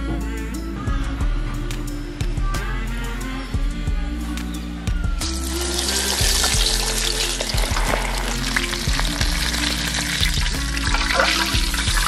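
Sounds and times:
background music: 0:00.0 - 0:12.0
oil sizzling: 0:05.2 - 0:12.0.

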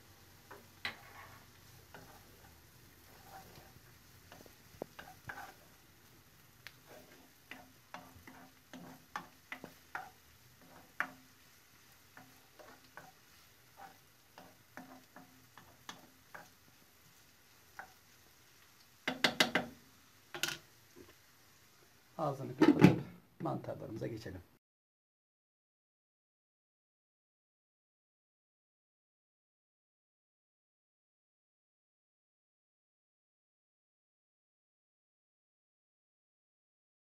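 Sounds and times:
vegetables sizzling: 0:00.0 - 0:22.7
spoon scraping frying pan: 0:00.4 - 0:21.2.

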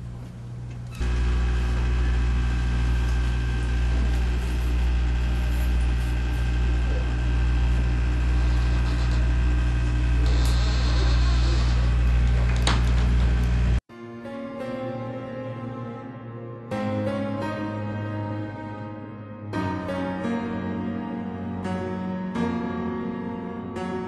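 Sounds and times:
low machine hum: 0:00.0 - 0:13.8.

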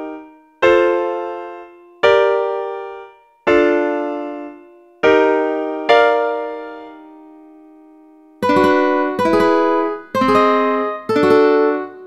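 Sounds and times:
piano chord: 0:00.0 - 0:12.0
ukulele chords strummed: 0:08.4 - 0:12.0.

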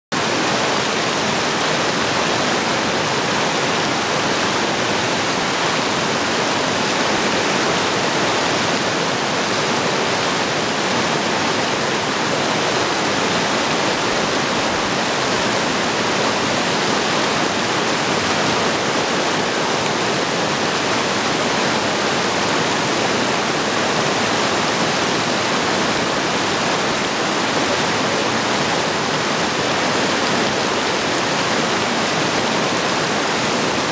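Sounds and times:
creek flowing over stones: 0:00.1 - 0:33.9.

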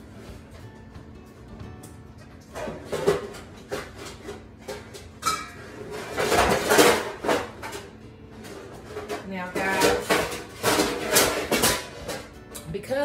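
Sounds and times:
pots and pans clattering: 0:02.4 - 0:12.6.

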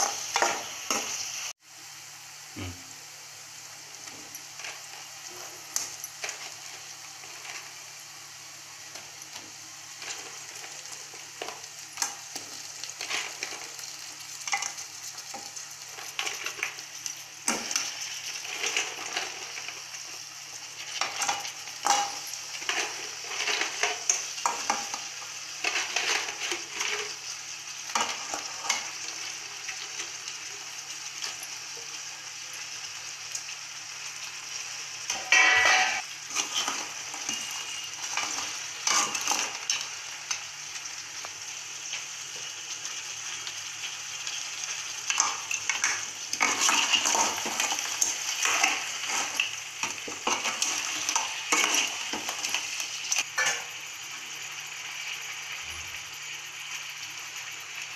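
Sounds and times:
crab sizzling in a pan: 0:00.0 - 0:57.9
metal spoon scraping a pan: 0:14.4 - 0:16.8, 0:17.4 - 0:19.8, 0:20.8 - 0:27.3, 0:27.9 - 0:30.2, 0:35.1 - 0:39.9, 0:45.1 - 0:53.7.

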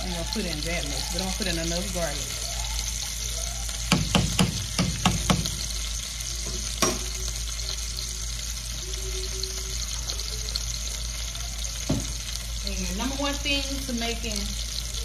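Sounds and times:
sauce sizzling in a pan: 0:00.0 - 0:15.0
utensil knocking against pan: 0:03.9 - 0:05.6, 0:06.5 - 0:07.1.

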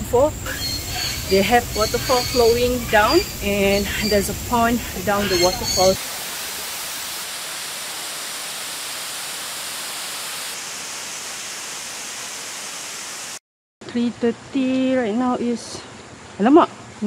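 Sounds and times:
waterfall rushing into pond: 0:02.6 - 0:13.4.

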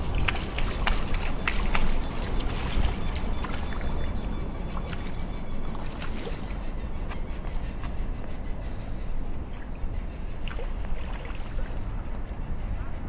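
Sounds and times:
water splashing from thrashing fish: 0:00.0 - 0:06.6
low rumble: 0:00.0 - 0:13.0.

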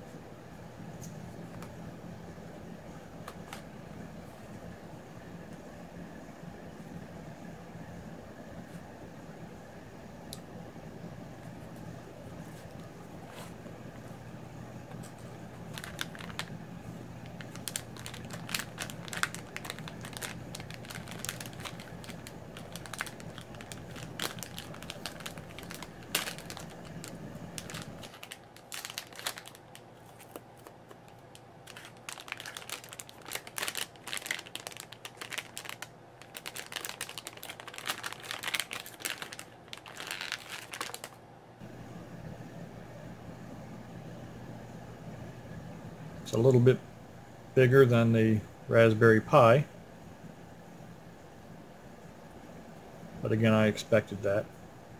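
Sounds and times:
metallized bag crinkling: 0:15.0 - 0:41.2.

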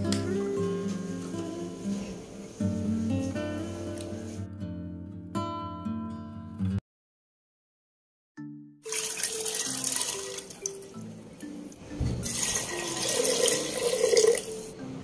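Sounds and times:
soft background music: 0:00.0 - 0:06.6, 0:08.4 - 0:15.0
tap water pouring and splashing: 0:08.9 - 0:11.1, 0:12.1 - 0:14.6.

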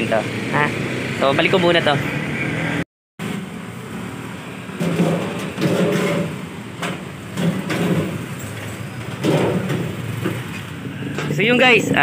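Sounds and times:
sharp metal knocks: 0:04.7 - 0:08.4, 0:09.0 - 0:11.7.

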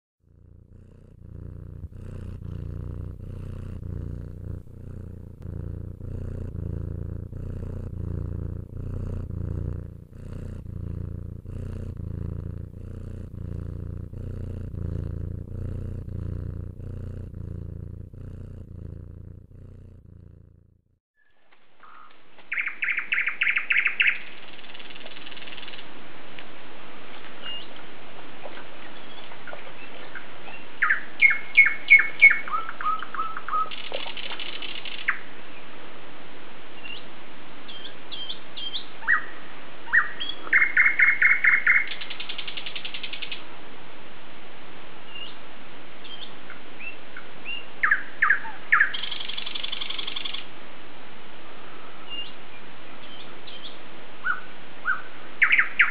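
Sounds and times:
steady hiss: 0:00.5 - 0:20.0
songbirds singing: 0:21.2 - 0:25.9, 0:28.5 - 0:35.7, 0:37.7 - 0:43.4, 0:46.0 - 0:50.5, 0:52.0 - 0:55.9.

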